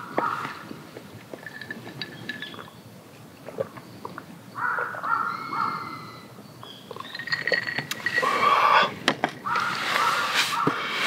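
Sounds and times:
faint high bird calls: 0:03.9 - 0:07.3
crow cawing: 0:04.6 - 0:06.0.

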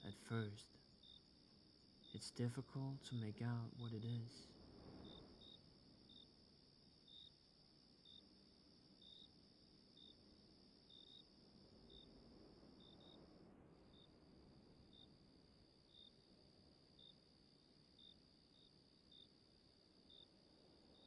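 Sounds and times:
crickets trilling: 0:00.0 - 0:21.0
short cricket chirps: 0:00.0 - 0:21.0.

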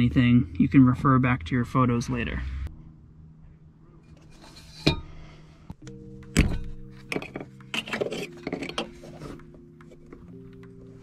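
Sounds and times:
soft background music: 0:05.8 - 0:11.0.

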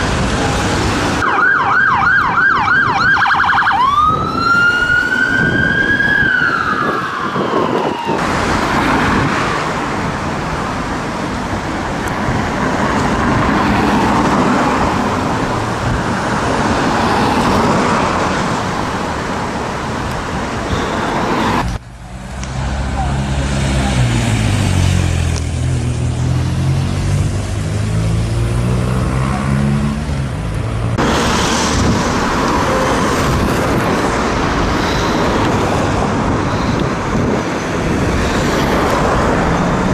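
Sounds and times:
road traffic: 0:00.0 - 0:39.9
ambulance siren wailing: 0:01.2 - 0:08.7.

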